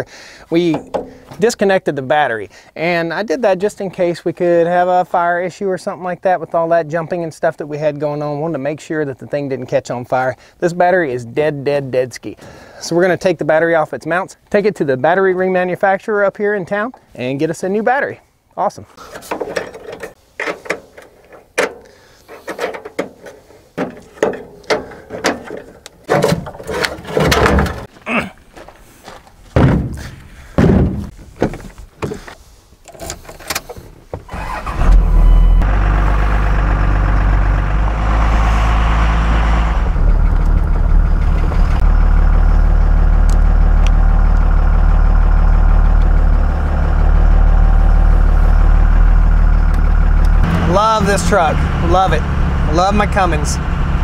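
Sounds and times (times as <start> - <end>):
diesel engine droning: 34.3 - 54.0.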